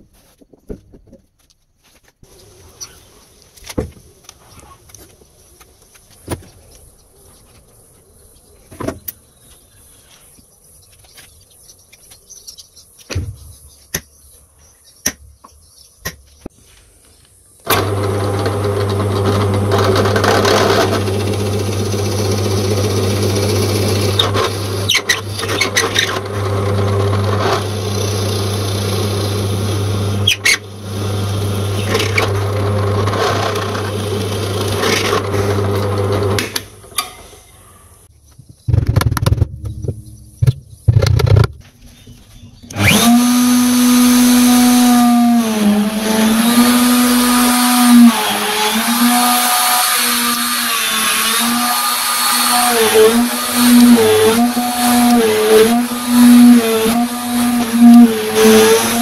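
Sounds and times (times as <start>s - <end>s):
power drill boring into wood: 17.7s - 36.9s, 42.7s - 59.0s.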